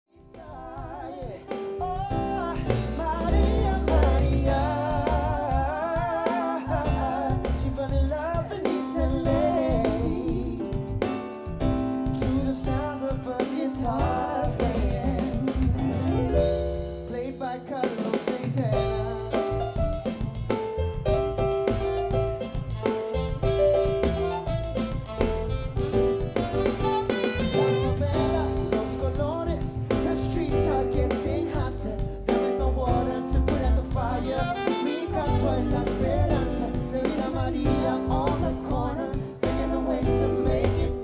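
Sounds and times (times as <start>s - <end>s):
man singing with vibrato: 0.1s - 10.8s, 12.0s - 19.7s, 26.8s - 41.0s
electric keyboard chords: 0.2s - 18.1s, 18.7s - 41.0s
drums: 0.2s - 41.0s.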